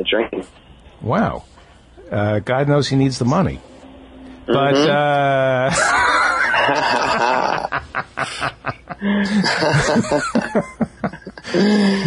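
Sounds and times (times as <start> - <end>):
breathy laughter: 5.7 - 12.0.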